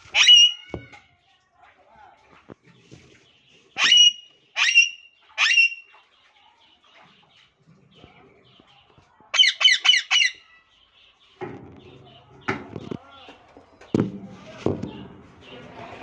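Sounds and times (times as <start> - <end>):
parakeet harsh calls: 0.1 - 0.7, 3.8 - 5.8, 9.4 - 10.6.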